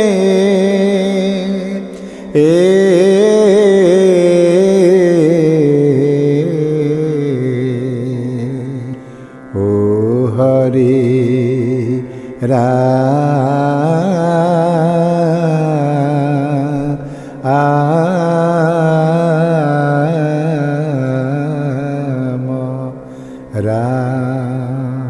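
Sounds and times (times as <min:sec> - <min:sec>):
man singing: 0:00.0 - 0:25.0
singer breathing: 0:01.9 - 0:02.4, 0:08.9 - 0:09.5, 0:12.0 - 0:12.4, 0:17.0 - 0:17.4, 0:23.0 - 0:23.5.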